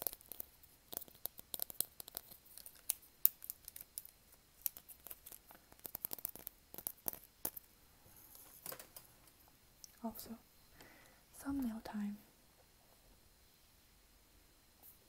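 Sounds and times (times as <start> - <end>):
plastic glasses clicking and tapping: 0.0 - 7.6.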